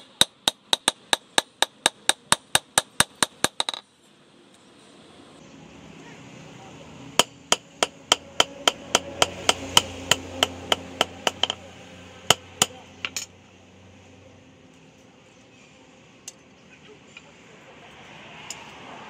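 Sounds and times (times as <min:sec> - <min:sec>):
hammer striking steel on anvil: 0:07.2 - 0:11.6, 0:12.3 - 0:13.3.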